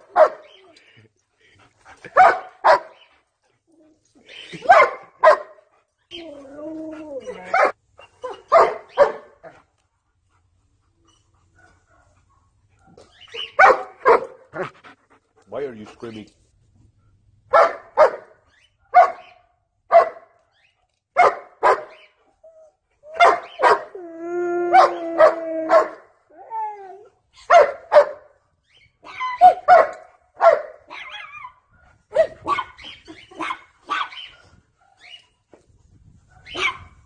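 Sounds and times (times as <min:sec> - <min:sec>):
dog barking: 0:00.1 - 0:00.5, 0:02.2 - 0:03.0, 0:04.7 - 0:05.6, 0:07.5 - 0:09.3, 0:12.8 - 0:14.4, 0:17.5 - 0:18.3, 0:18.9 - 0:19.3, 0:19.9 - 0:20.3, 0:21.2 - 0:22.0, 0:23.2 - 0:23.9, 0:24.8 - 0:26.0, 0:27.5 - 0:28.3, 0:29.4 - 0:31.1, 0:36.4 - 0:36.9.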